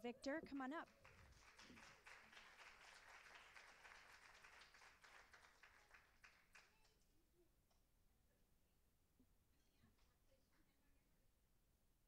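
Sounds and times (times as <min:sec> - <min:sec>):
audience applause: 0:00.9 - 0:06.8.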